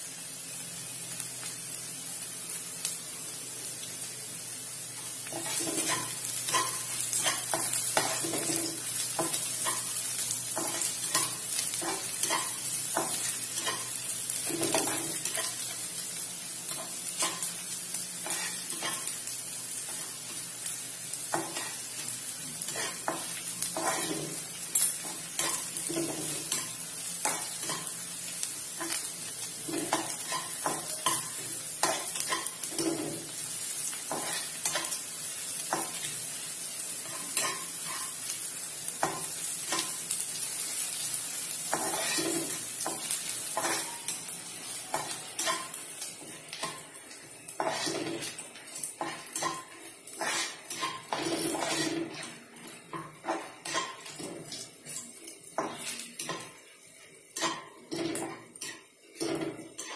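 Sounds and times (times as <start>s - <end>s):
onions sizzling in hot oil: 0.0s - 59.9s
spatula scraping a pan: 5.2s - 9.9s, 10.6s - 15.8s, 18.2s - 19.2s, 22.6s - 28.0s, 29.6s - 33.3s, 34.1s - 35.0s, 41.7s - 44.1s, 47.6s - 48.4s, 49.0s - 55.0s, 57.4s - 59.9s.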